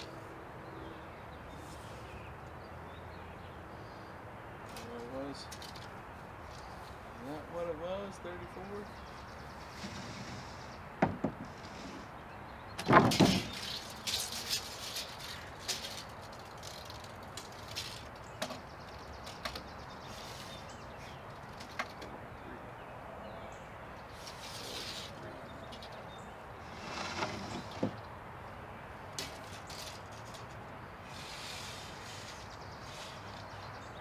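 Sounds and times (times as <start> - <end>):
board clattering on wooden floor: 11.0 - 11.5, 12.8 - 13.6
wood knocks: 11.0 - 11.5.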